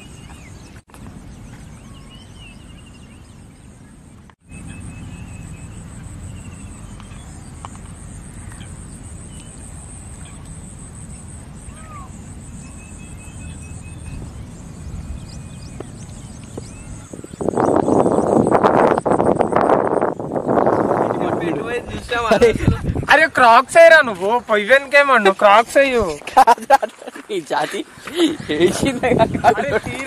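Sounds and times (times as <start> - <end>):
bird chirps: 0.0 - 21.0
high insect drone: 4.4 - 22.6.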